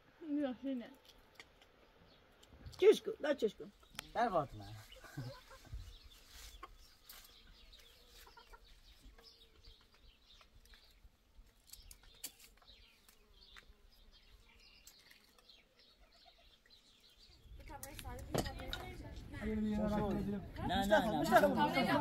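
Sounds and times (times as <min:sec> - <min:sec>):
faint chickens clucking: 0:03.7 - 0:10.6, 0:14.4 - 0:16.9.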